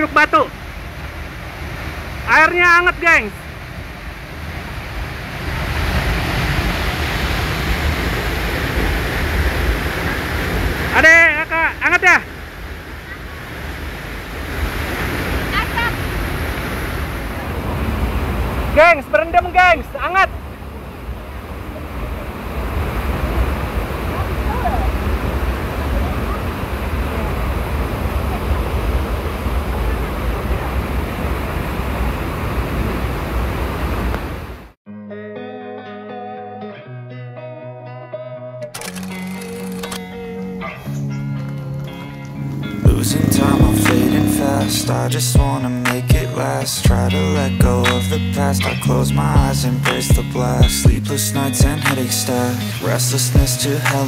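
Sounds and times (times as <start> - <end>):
waterfall rushing: 0.0 - 34.7, 41.8 - 54.0
deep rumble: 42.1 - 46.3.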